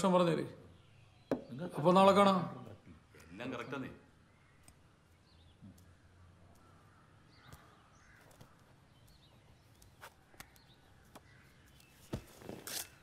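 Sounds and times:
soft clicks: 4.5 - 4.9.

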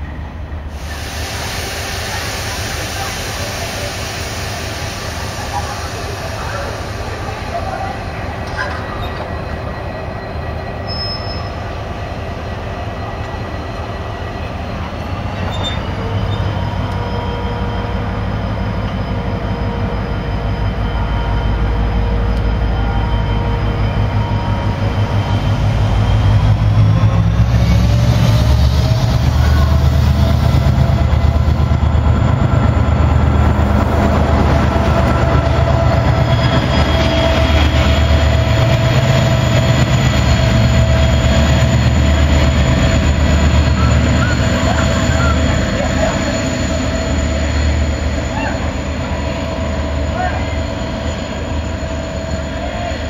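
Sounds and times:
diesel locomotive engine throttling up: 0.0 - 53.0.

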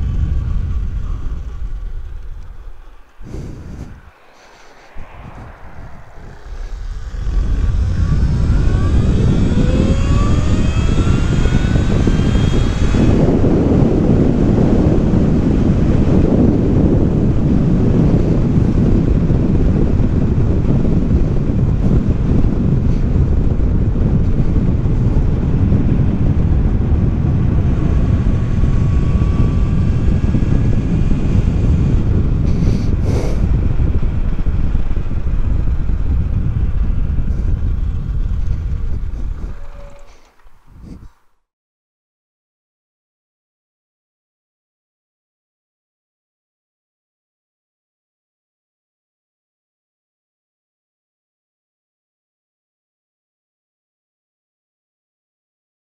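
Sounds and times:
wind buffeting on microphone: 0.0 - 41.2
electric motorcycle motor whine: 5.8 - 41.1.

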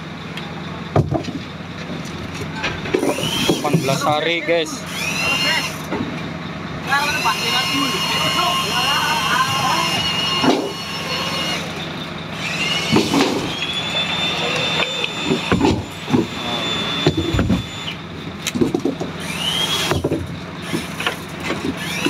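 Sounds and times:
low engine hum: 0.0 - 22.0
winch whining: 2.4 - 22.0.

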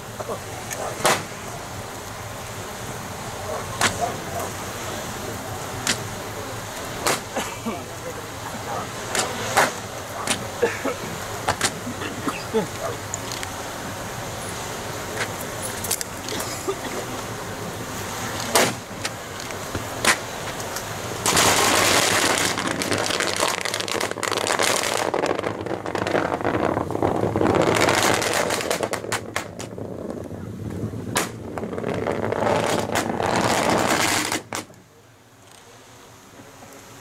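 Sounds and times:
fire crackling: 0.0 - 37.0
fire rushing hiss: 0.0 - 37.0
sharp pops from fire: 0.7 - 1.4, 3.6 - 4.6, 5.6 - 6.1, 6.8 - 7.4, 9.1 - 10.5, 11.5 - 11.8, 18.4 - 34.8.

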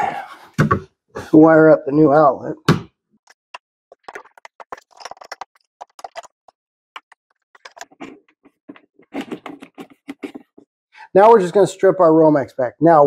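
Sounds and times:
cable scraping through plastic box: 9.1 - 10.6.

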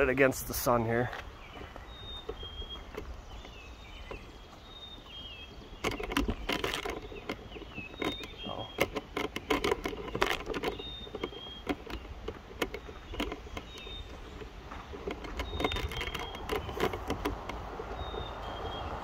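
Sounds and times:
wind rumble on microphone: 1.3 - 19.0
footsteps on lawn: 10.8 - 18.6.

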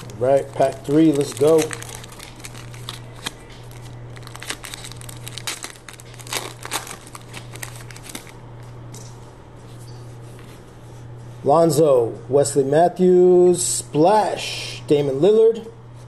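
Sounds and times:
wrapper crinkling and tearing: 0.0 - 8.4.

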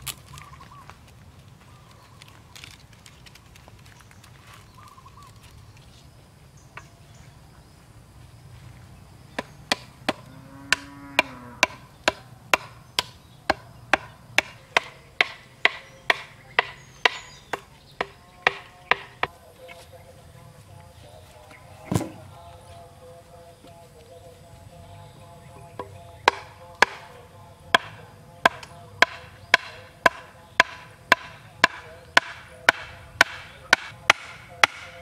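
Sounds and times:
sharp wooden knocks: 9.4 - 19.3, 25.8 - 35.0.

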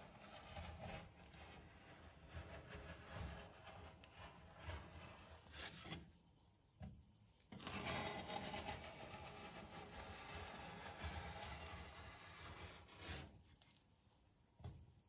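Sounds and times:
metal spatula scraping cold plate: 0.0 - 6.0, 7.5 - 13.4.

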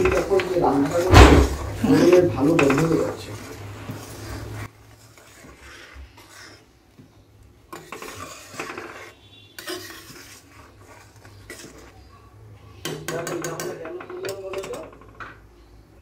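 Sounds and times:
metal spatula scraping a wok: 0.0 - 6.8, 7.6 - 12.1.

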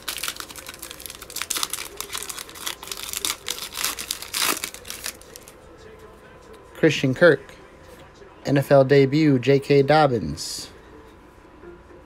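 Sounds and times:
foil wrapper crinkling and tearing: 0.0 - 5.5.

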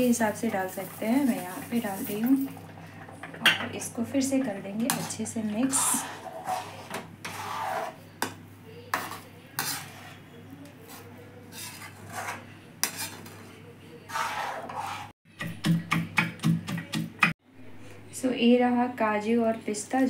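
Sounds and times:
spatula scraping metal pan: 4.8 - 13.5, 14.1 - 15.2.

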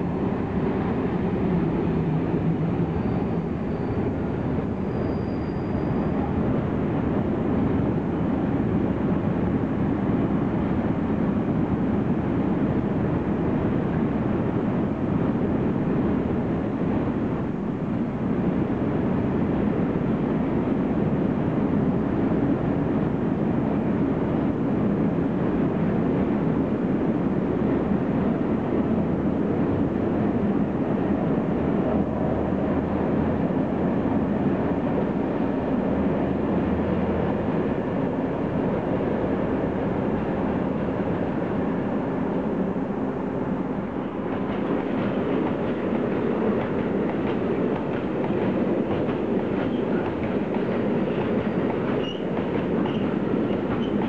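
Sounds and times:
freight train wagons rolling: 44.4 - 54.0.

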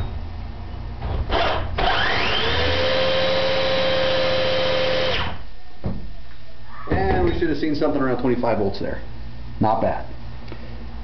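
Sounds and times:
electric drill whining: 1.3 - 5.4.

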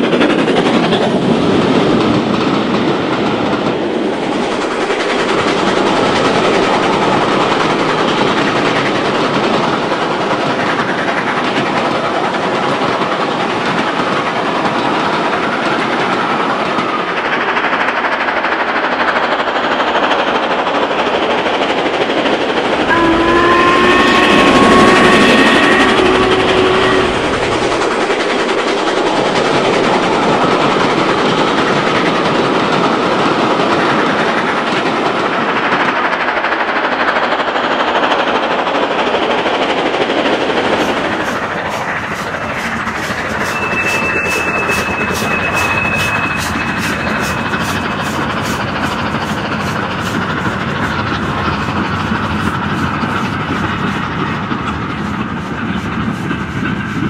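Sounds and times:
steam whistle blowing: 22.8 - 29.8, 40.4 - 49.3.

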